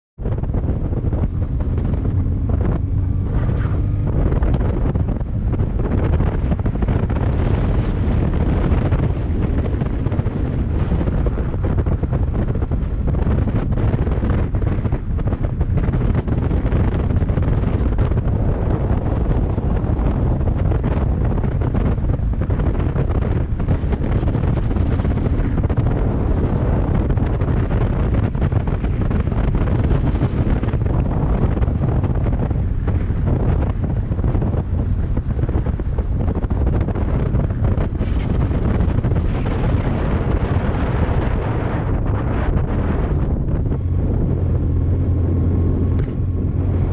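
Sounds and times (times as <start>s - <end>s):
wind on microphone: 0.2s - 46.9s
motorcycle engine: 0.3s - 46.9s.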